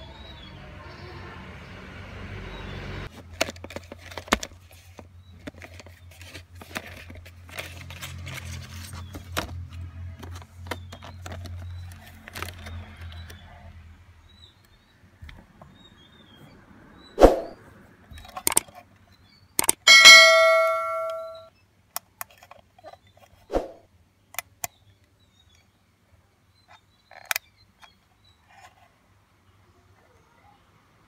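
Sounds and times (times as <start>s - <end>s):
plastic clicks and crackles: 3.1s - 13.4s, 18.1s - 19.0s, 21.9s - 23.4s, 26.7s - 28.7s.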